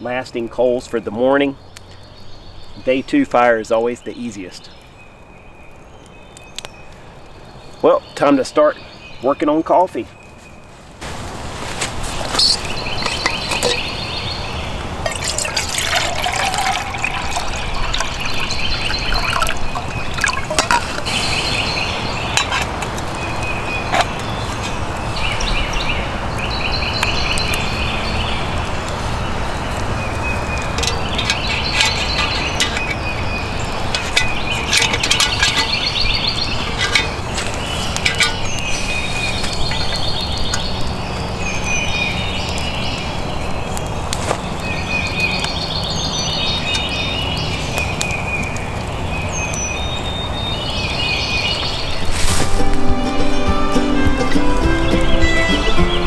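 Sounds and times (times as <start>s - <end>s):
campfire crackling and popping: 0.1s - 56.0s
songbird trilling: 12.3s - 28.4s, 30.0s - 43.1s
water pouring into metal pot: 15.0s - 21.6s, 30.2s - 40.8s.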